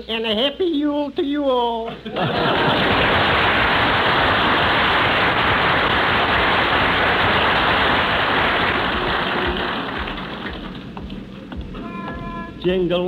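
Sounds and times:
audience applauding: 2.2s - 11.3s.

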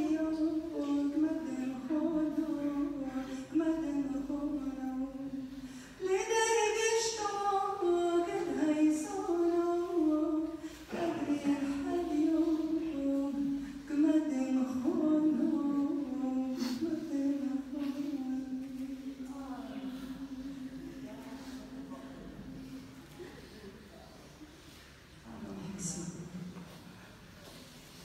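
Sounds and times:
woman singing unaccompanied: 0.0s - 22.3s.

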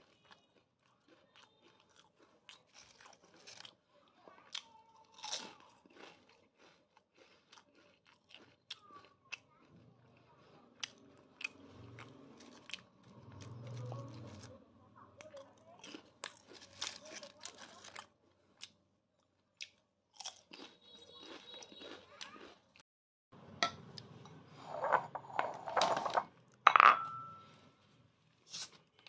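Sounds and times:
potato chips crunching: 0.0s - 3.8s, 4.4s - 14.5s, 15.2s - 18.8s, 19.5s - 22.8s
ceramic bowl clinking: 24.6s - 27.6s.

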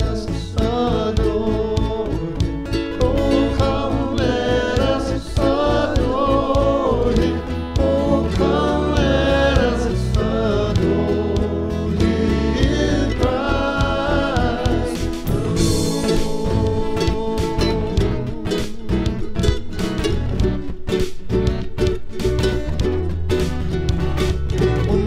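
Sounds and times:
group singing gospel song: 0.0s - 20.0s
guitar accompaniment: 0.0s - 25.0s.

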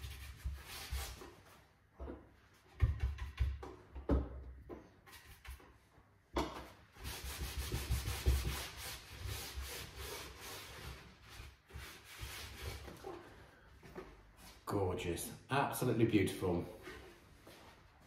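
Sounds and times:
rapid rubbing strokes on wood: 7.0s - 13.0s.

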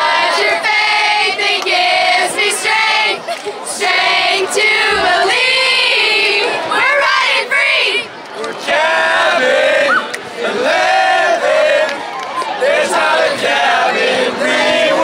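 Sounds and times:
girls singing a cheer in unison: 0.0s - 10.0s.

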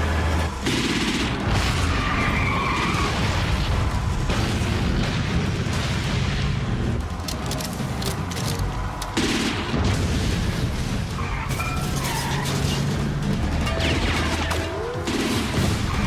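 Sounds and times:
tyres skidding: 0.0s - 9.2s
action film score music: 0.0s - 16.0s
car engine: 0.0s - 16.0s.

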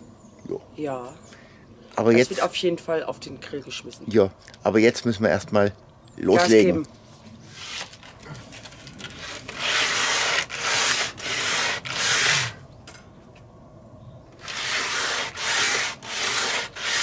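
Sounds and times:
hand sanding wooden boards: 9.2s - 12.6s, 14.4s - 17.0s.

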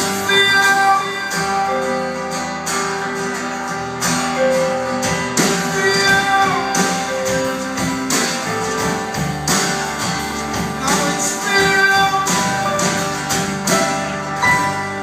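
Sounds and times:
acoustic guitar strumming chords: 0.0s - 15.0s
live rock band playing: 0.0s - 15.0s.

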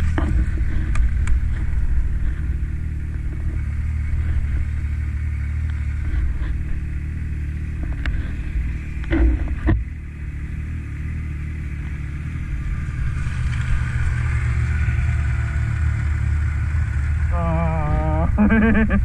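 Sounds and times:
snowmobile engines running: 0.0s - 19.0s
sharp thumps: 9.0s - 9.9s.

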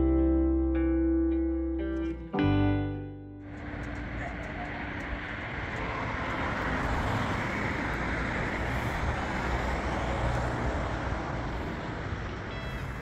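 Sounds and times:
vehicle passing on road: 3.4s - 13.0s.

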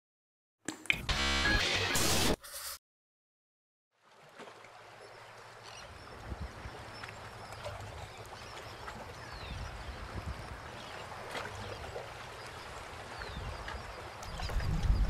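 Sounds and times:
gentle water sounds: 3.9s - 15.0s.

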